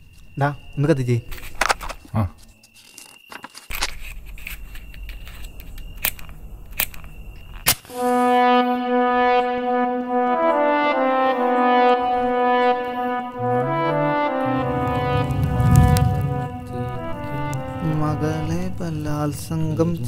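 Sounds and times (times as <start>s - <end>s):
orchestral film score chord: 7.9s - 19.3s
low rumble: 13.3s - 18.8s.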